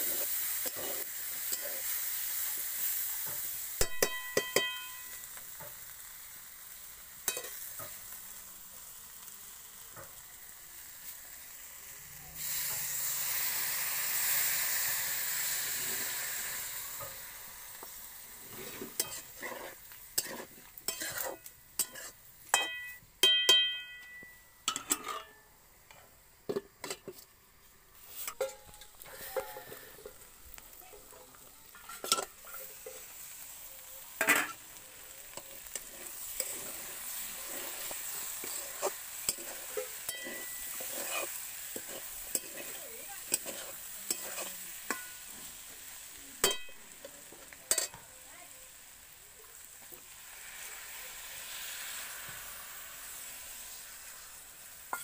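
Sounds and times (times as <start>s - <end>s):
spatula scraping a steel wok: 0.0s - 5.9s, 7.2s - 8.2s, 12.4s - 17.2s, 17.8s - 27.3s, 28.0s - 30.3s, 31.0s - 33.4s, 34.1s - 48.0s
vegetables sizzling: 0.0s - 55.0s
metallic clanks of pan: 3.2s - 5.8s, 7.2s - 8.0s, 19.0s - 19.4s, 20.2s - 27.3s, 28.2s - 30.2s, 31.7s - 33.1s, 34.2s - 34.6s, 38.4s - 45.4s, 46.4s - 46.8s, 47.7s - 48.0s.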